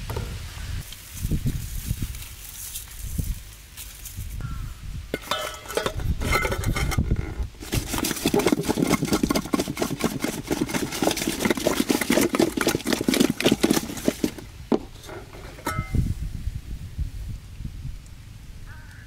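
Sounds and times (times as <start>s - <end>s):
chicken rattling in metal pot: 5.2s - 16.0s.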